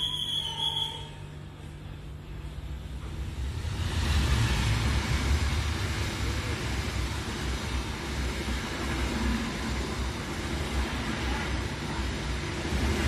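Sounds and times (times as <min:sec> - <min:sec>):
locomotive engine rumble: 0:01.2 - 0:13.0
train coaches rushing past: 0:02.9 - 0:13.0.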